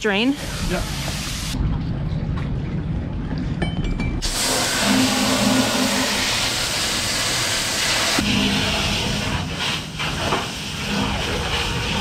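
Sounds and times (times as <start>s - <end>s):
hose spray hissing: 0.5s - 1.6s, 4.2s - 8.2s
low rumble of handling: 1.6s - 4.2s.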